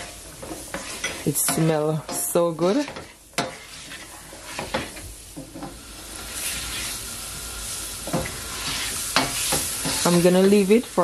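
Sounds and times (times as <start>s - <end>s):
spatula scraping and knocking pan: 0.0s - 7.0s, 8.0s - 10.8s
vegetables sizzling in oil: 0.0s - 11.0s.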